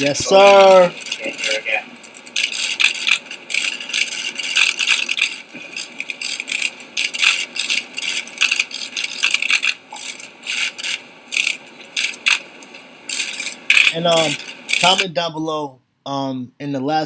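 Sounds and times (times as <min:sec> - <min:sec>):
camera shutters clicking: 0:02.1 - 0:15.0.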